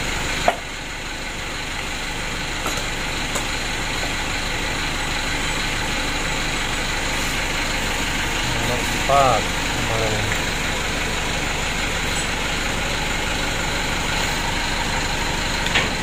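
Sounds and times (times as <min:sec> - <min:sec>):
motor humming steadily: 0:00.0 - 0:16.0.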